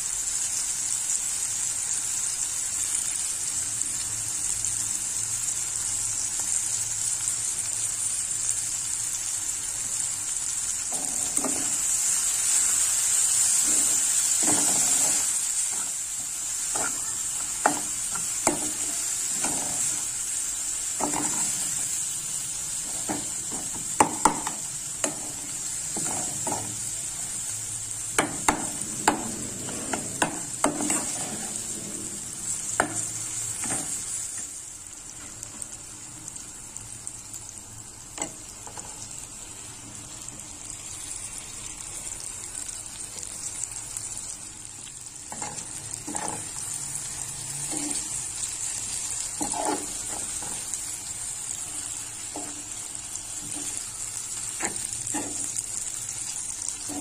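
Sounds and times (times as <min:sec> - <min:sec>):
onions frying in oil: 0:00.0 - 0:57.0
metal spoon scraping a pan: 0:13.6 - 0:16.0, 0:21.0 - 0:21.8, 0:28.3 - 0:33.0, 0:45.3 - 0:46.6, 0:47.6 - 0:48.2, 0:49.4 - 0:50.7.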